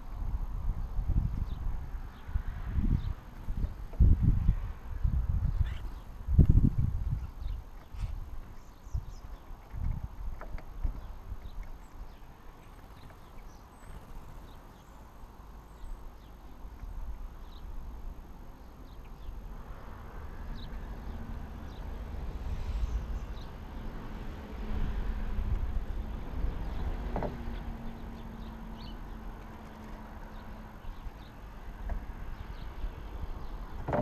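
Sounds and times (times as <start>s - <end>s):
faint bird chirps: 5.5s - 6.1s
engine hum: 19.4s - 34.0s.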